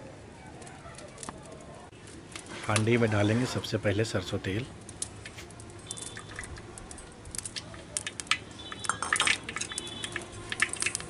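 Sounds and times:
wood fire crackling and popping: 0.4 - 11.0
oil pouring: 2.4 - 11.0.

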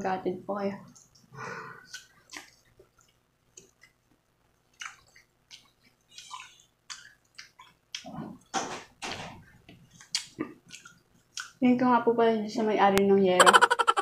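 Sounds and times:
wet crisp chewing: 4.7 - 8.1, 9.9 - 11.6.

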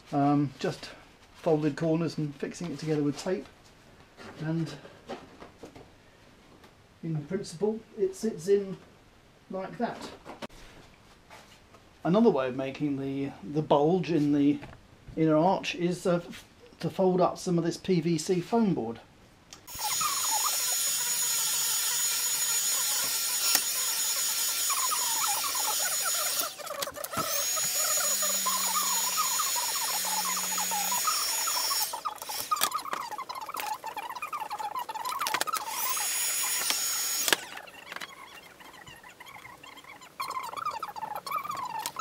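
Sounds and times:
heat gun hissing and whining: 19.7 - 32.7, 35.7 - 37.6.

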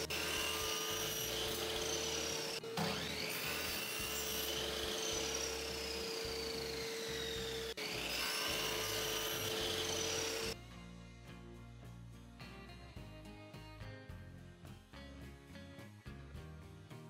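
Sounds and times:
miter saw cutting wood: 0.0 - 10.6
background music: 0.0 - 17.0.

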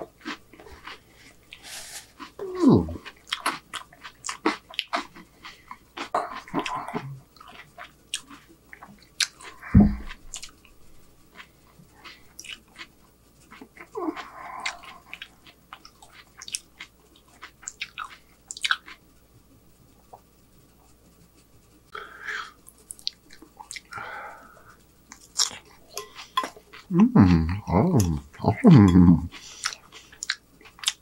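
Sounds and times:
person chewing food: 0.0 - 19.0, 22.3 - 31.0
low grunt: 9.6 - 10.1, 26.9 - 29.3.

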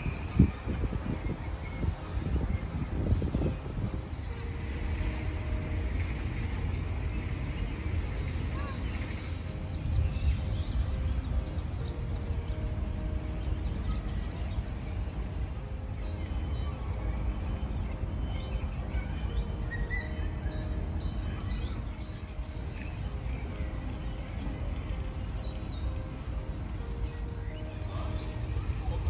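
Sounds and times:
steady low rumble: 0.0 - 29.0.

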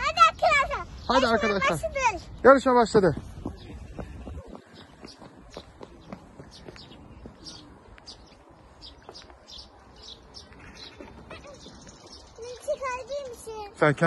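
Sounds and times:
small bird chirping: 3.4 - 13.8.

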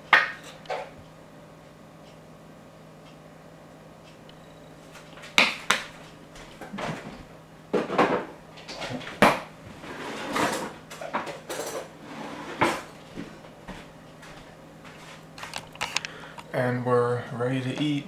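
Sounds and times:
kitchen utensils clattering: 9.9 - 13.0.

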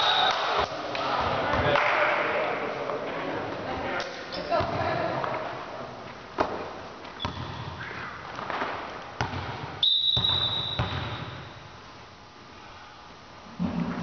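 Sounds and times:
high steady whistle: 9.8 - 11.3.

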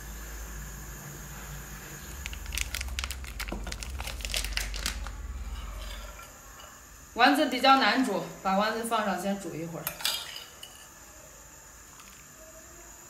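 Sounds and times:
low steady hum: 0.0 - 13.0
plastic packets crinkling: 2.0 - 5.3
sharp crackles: 2.1 - 5.2.

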